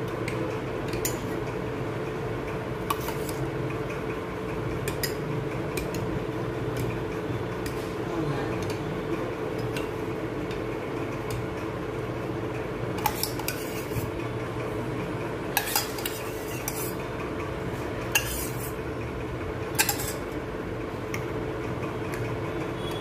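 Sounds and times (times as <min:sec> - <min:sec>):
steady low hum: 0:00.0 - 0:22.9
spoon clinking and scraping bowl: 0:02.8 - 0:03.4, 0:13.0 - 0:14.2, 0:15.6 - 0:17.0, 0:18.1 - 0:18.8, 0:19.8 - 0:20.3.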